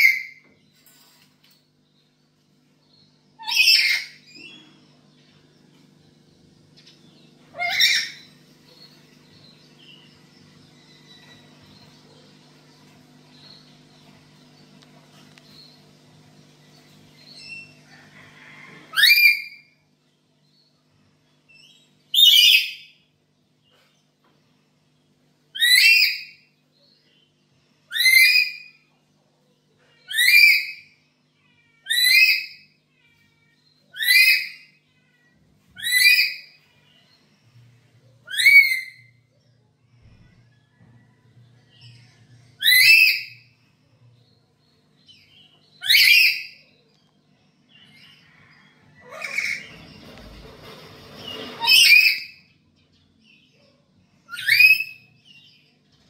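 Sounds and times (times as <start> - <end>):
parrot whistled calls: 3.4 - 4.2, 7.5 - 8.3, 33.9 - 34.7, 38.2 - 39.1, 54.3 - 55.1.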